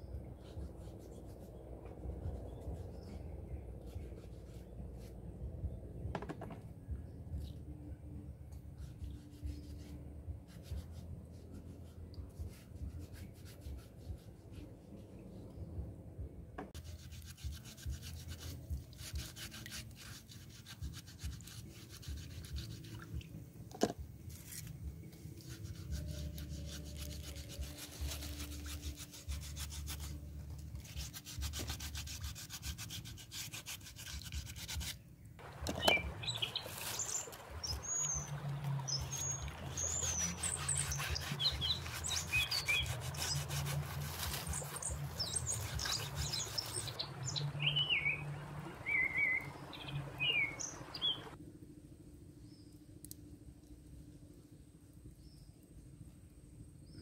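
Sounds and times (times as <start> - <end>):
scrubbing shellfish scratchy rubbing: 16.8 - 23.5, 24.3 - 51.4
birds chirping: 35.4 - 43.7, 44.4 - 51.4
water sloshing: 35.4 - 51.4.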